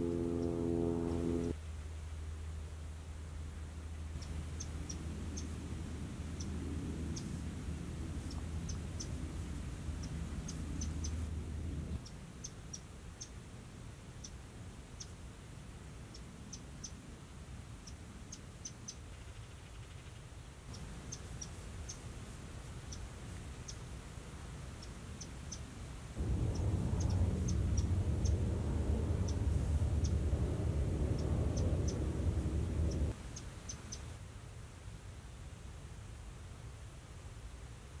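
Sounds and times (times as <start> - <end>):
low rumble: 0.0 - 1.6, 26.2 - 33.2
faint high-pitched chirps: 26.2 - 34.1.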